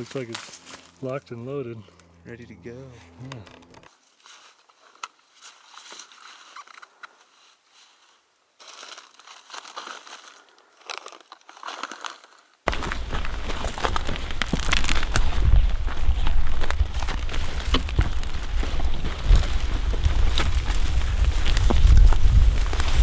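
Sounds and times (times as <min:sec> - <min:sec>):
brush crunching underfoot: 0:00.0 - 0:02.2, 0:02.9 - 0:23.0.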